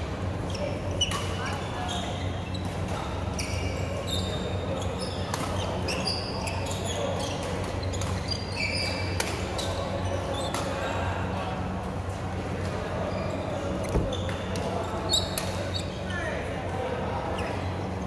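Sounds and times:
low hall hum: 0.0 - 18.0
sports shoes squeaking on floor: 0.4 - 10.5, 13.0 - 16.3.

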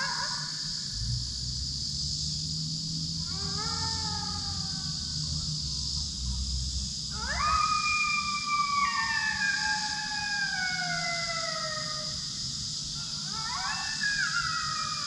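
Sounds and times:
coyote howling: 3.3 - 5.0, 7.2 - 12.4, 13.2 - 15.0.

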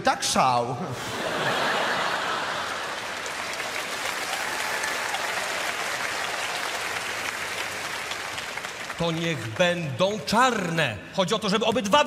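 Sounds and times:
audience applauding: 1.6 - 10.7.

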